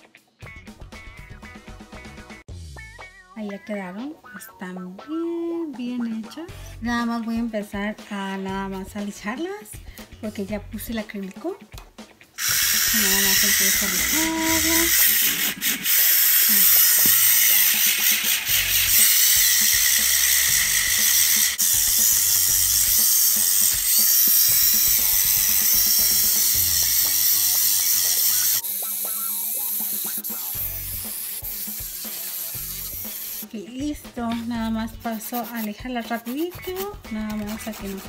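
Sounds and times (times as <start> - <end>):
background music: 0.0 - 38.0
electric nail drill grinding: 12.4 - 33.5.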